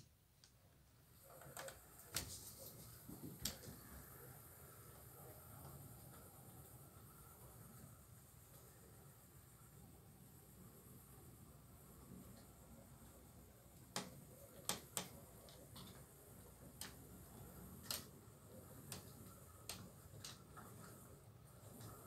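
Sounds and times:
faint hiss: 0.0 - 22.0
model train wheels clicking: 13.8 - 22.0.

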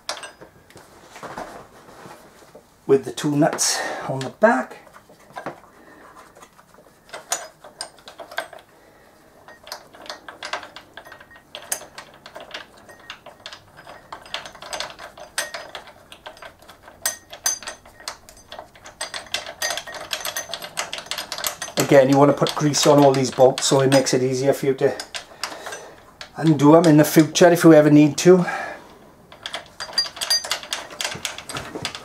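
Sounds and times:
metal bolts and nuts clinking: 0.0 - 0.6, 6.4 - 8.7, 9.4 - 28.4, 29.3 - 32.0.

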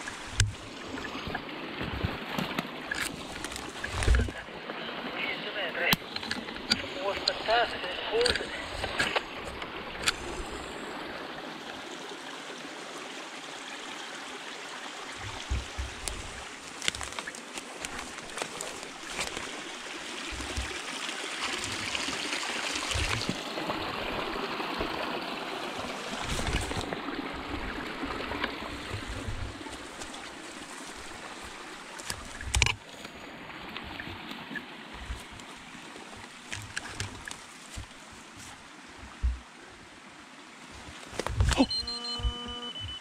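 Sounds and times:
grass and branches brushing: 0.0 - 4.4, 15.1 - 25.0, 25.8 - 39.5, 40.6 - 41.6
twigs snapping: 2.4 - 4.3, 15.2 - 20.8, 36.2 - 38.0
footsteps through undergrowth: 15.2 - 20.8, 28.6 - 32.4, 34.9 - 39.4.

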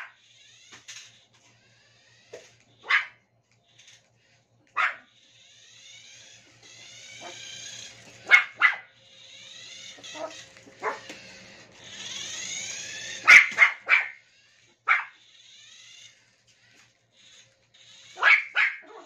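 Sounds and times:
toy car motor whirring: 0.0 - 19.0
dog barking: 2.8 - 3.2, 4.7 - 5.1, 8.2 - 8.9, 10.1 - 11.1, 13.2 - 14.2, 14.8 - 15.2, 18.2 - 19.0.

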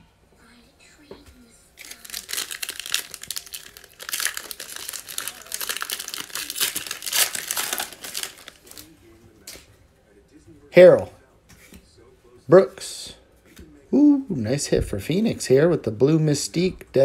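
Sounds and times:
foil wrapper crinkling and tearing: 1.8 - 8.9.

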